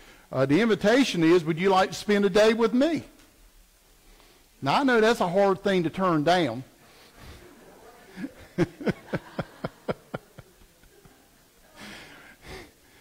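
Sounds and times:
person laughing: 8.2s - 11.2s.

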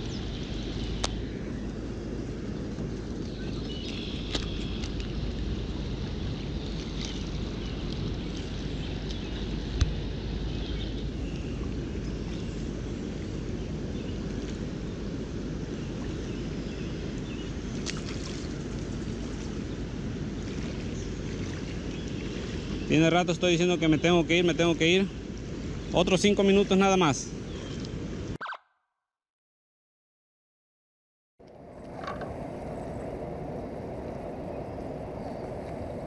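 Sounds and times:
low outdoor rumble: 0.0s - 28.4s.

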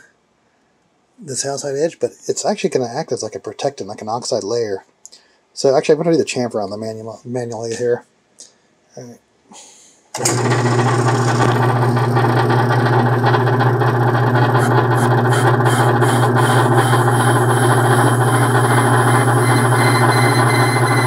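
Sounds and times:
metal lathe motor hum: 10.2s - 21.0s.

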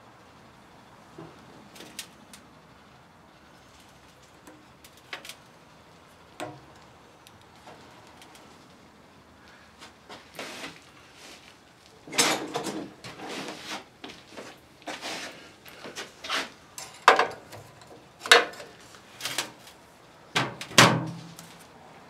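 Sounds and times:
knocks and clatters at workbench: 16.8s - 17.4s.

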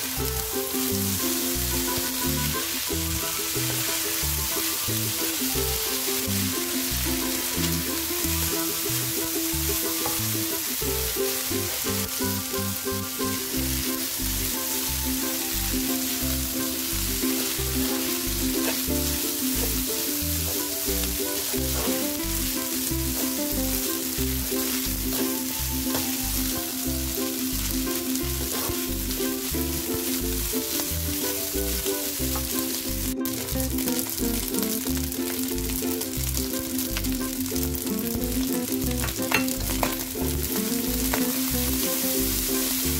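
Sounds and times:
background music with beat: 0.0s - 42.9s
rice sizzling in a wok: 0.0s - 42.9s
spatula stirring in wok: 3.6s - 12.1s, 16.0s - 29.4s.

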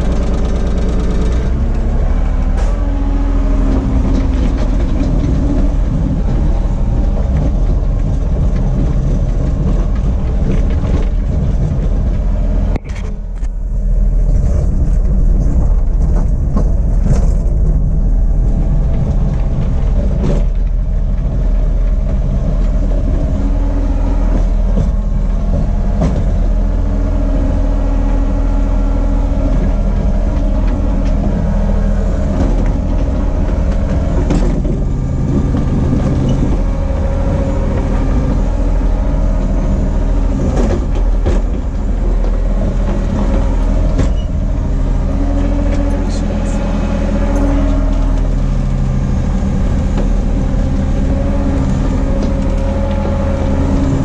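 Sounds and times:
large engine idling: 0.0s - 54.0s.

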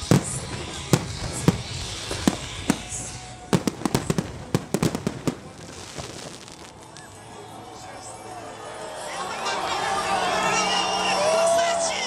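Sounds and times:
fireworks bursting with bangs: 0.0s - 7.2s.

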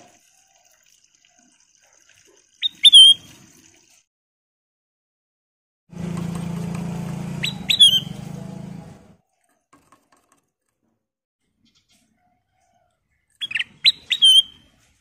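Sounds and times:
bird giving sharp calls: 7.4s - 8.2s.

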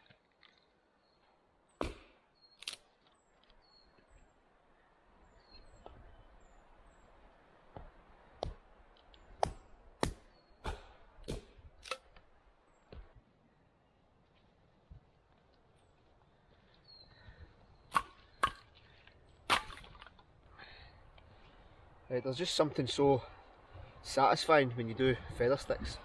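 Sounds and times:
hatchet chopping firewood: 1.8s - 2.8s, 9.3s - 12.3s, 17.9s - 18.8s, 19.4s - 20.2s.

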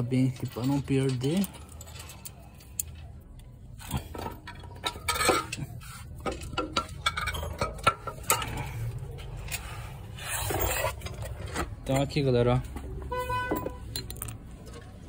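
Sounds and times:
small metal parts clinking: 0.0s - 12.3s, 13.2s - 15.0s.

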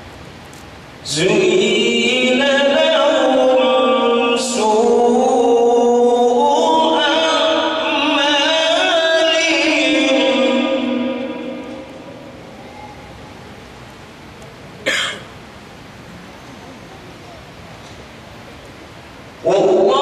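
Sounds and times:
man singing melismatic line: 19.4s - 20.0s.

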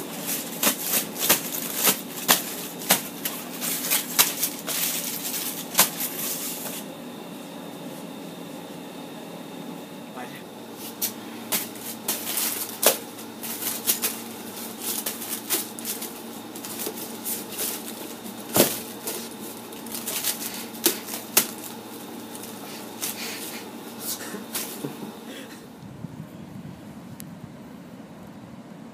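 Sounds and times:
aluminium foil crinkling: 0.0s - 6.8s, 10.8s - 24.9s.

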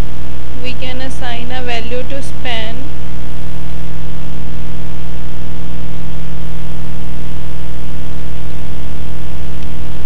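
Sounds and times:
buzzy electrical mains hum: 0.0s - 10.0s.

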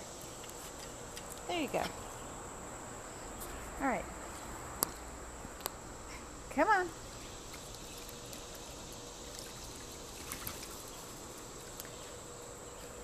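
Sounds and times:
trickling water: 7.1s - 11.9s
soft ticks or splashes: 7.4s - 12.0s.

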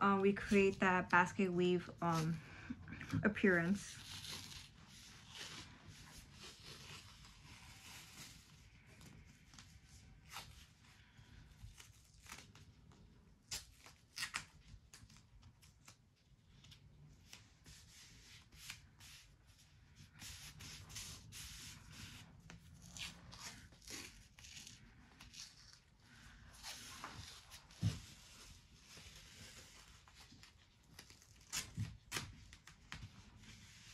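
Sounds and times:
athletic tape pulled and torn: 3.9s - 5.5s, 11.7s - 12.7s, 13.4s - 16.0s, 22.8s - 25.9s, 29.5s - 32.7s
sharp tape rips: 13.5s - 15.0s, 30.9s - 32.4s.

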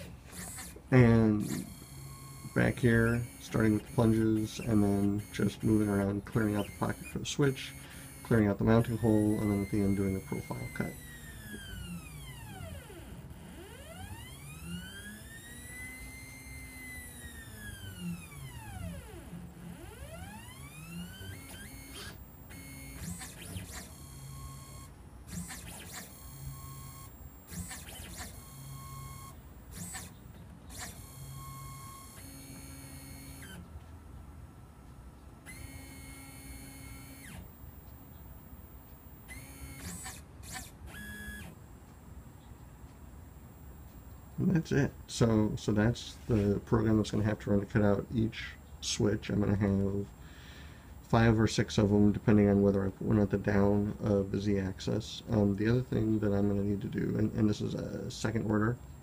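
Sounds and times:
stepper motor whine: 0.0s - 33.7s, 35.4s - 41.7s.

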